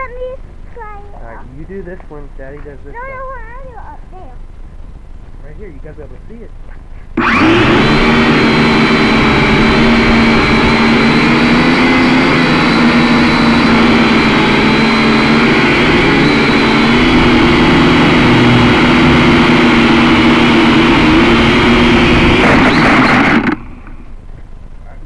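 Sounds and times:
toy quadcopter buzzing whine: 7.2 - 23.9.

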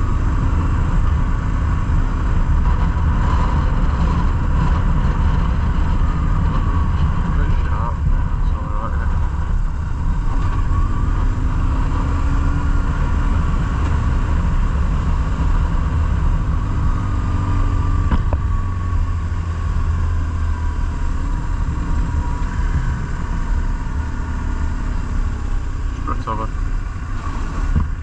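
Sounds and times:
motorcycle engine rumbling: 0.0 - 28.0.

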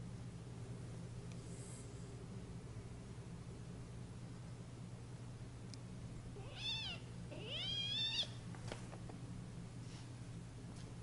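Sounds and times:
kitten squealing: 6.4 - 8.4.

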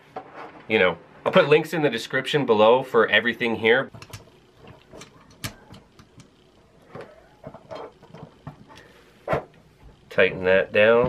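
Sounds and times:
metal parts clicking and tapping: 3.9 - 8.9.

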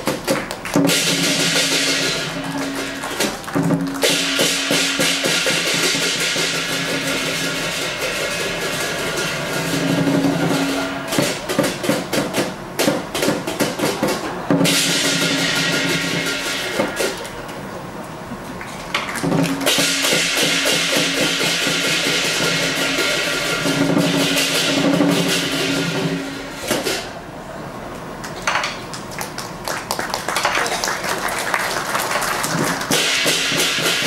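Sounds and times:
big drum beating fast: 0.0 - 17.2, 19.2 - 27.1, 32.4 - 34.0
clashing cymbals: 0.8 - 12.7, 14.5 - 17.2, 19.4 - 27.2, 32.8 - 34.0.

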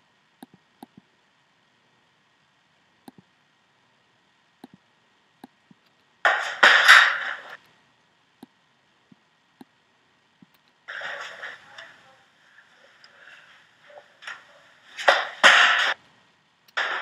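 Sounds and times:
noisy video playback burst: 0.0 - 17.0
computer mouse clicks: 0.4 - 1.1, 3.0 - 3.3, 4.6 - 4.8.

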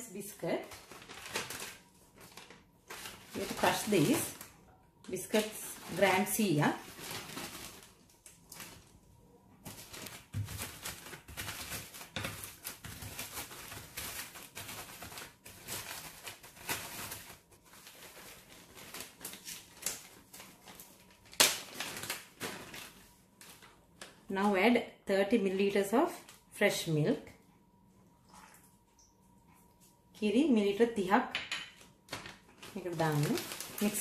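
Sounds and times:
plastic bag crinkling: 0.3 - 24.4, 31.8 - 34.0.

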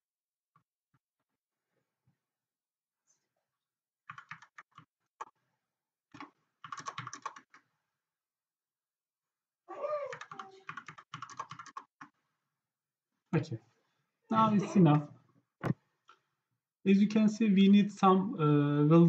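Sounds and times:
typing on computer keyboard: 4.1 - 5.3, 6.1 - 7.6, 10.1 - 12.2.

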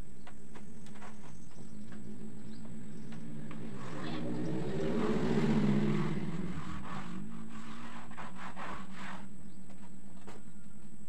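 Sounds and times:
steady low hum: 0.0 - 10.2
engine passing by: 1.5 - 9.4.

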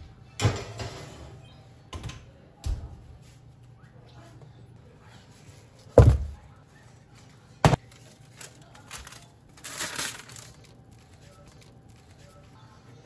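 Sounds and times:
baking parchment crackling: 6.6 - 13.0.

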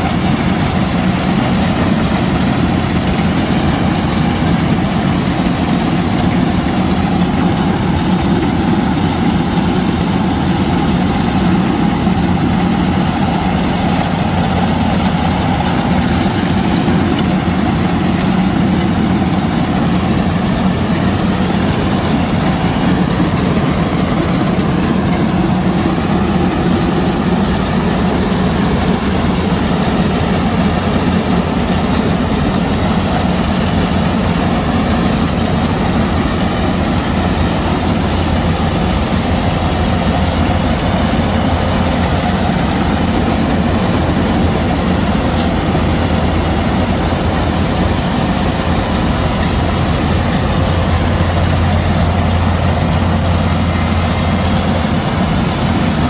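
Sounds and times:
combine harvester engine running: 0.0 - 56.0.

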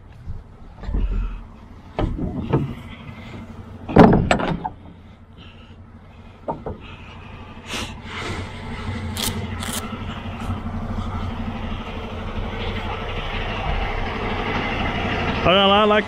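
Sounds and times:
truck diesel engine idling: 0.0 - 16.0.

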